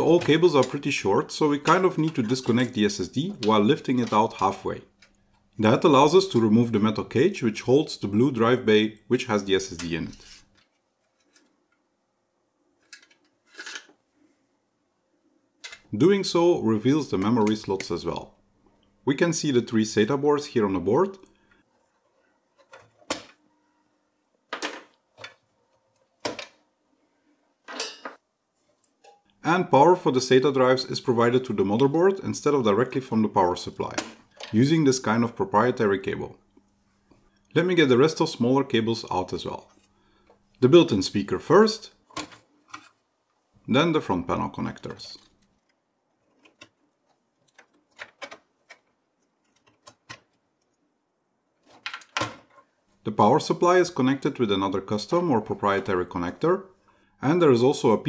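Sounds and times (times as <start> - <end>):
wires being handled: 9.7 - 11.9, 44.9 - 50.9.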